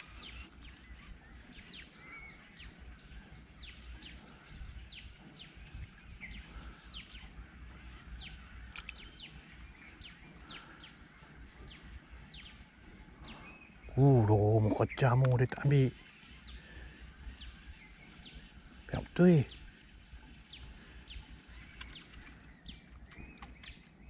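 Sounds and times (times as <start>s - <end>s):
low steady rumble: 0.0s - 15.0s
birds chirping: 0.0s - 24.0s.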